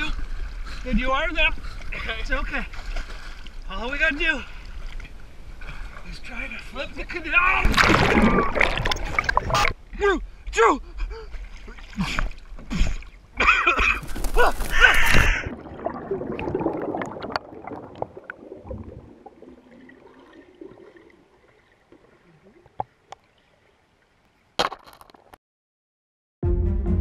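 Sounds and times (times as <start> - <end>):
water splashing: 7.3 - 9.8, 11.2 - 24.3
underwater bubbling: 7.7 - 9.9, 14.1 - 24.2.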